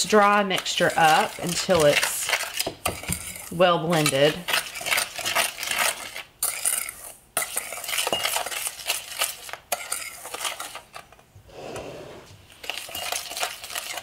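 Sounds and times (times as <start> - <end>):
spoon scraping metal bowl: 0.0 - 14.0.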